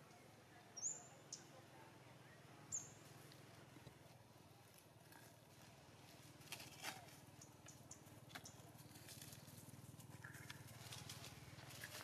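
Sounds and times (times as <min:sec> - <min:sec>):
crackles of dry leaf litter: 0:03.1 - 0:12.0.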